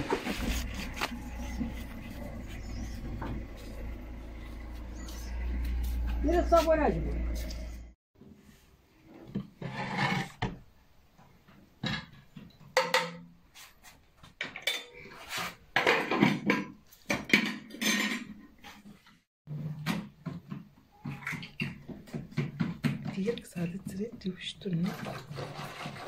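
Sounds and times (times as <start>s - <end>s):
dishes and cutlery clattering: 11.8s - 13.3s, 14.4s - 15.1s, 15.8s - 18.4s.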